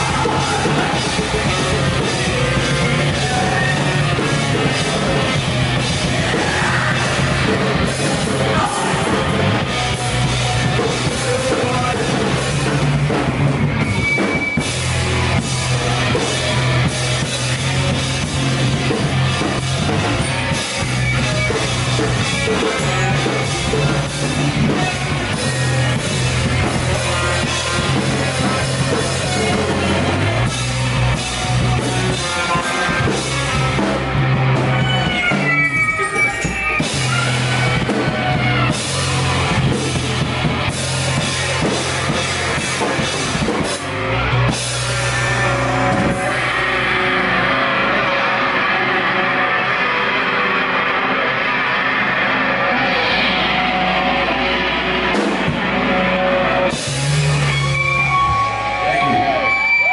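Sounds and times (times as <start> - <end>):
drum kit and cymbals: 0.0 - 47.5, 52.7 - 59.9
electric bass line: 0.0 - 59.9
electric guitars: 0.0 - 59.9.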